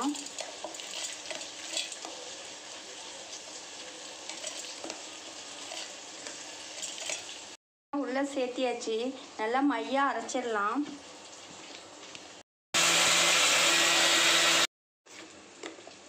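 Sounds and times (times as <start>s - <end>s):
food sizzling in hot oil: 0.0s - 7.6s, 8.7s - 14.6s.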